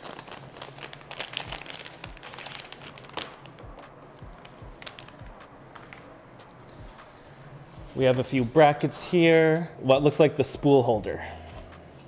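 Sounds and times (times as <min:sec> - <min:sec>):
plastic bag crinkling: 0:00.0 - 0:03.7.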